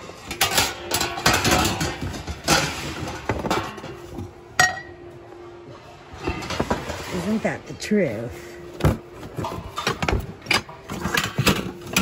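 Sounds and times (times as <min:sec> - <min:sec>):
dishes and glassware clinking: 0:00.0 - 0:05.1.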